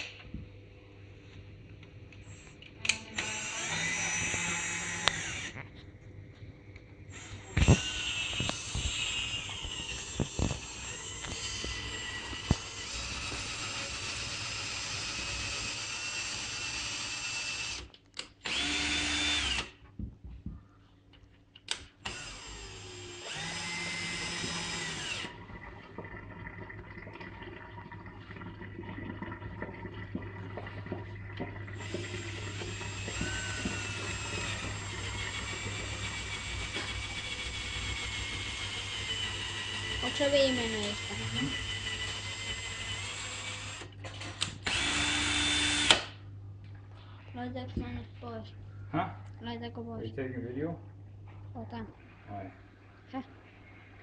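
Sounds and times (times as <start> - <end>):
cordless drill motor spinning: 3.1 - 5.6, 7.1 - 19.8, 22.0 - 25.4, 31.8 - 46.1.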